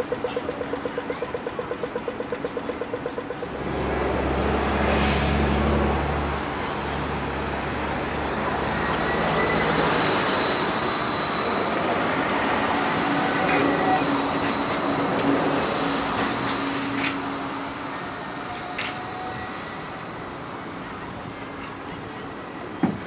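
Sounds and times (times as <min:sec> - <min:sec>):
rapid pulsing tone: 0:00.0 - 0:04.4
tram passing: 0:00.0 - 0:23.0
high whines: 0:06.4 - 0:22.8.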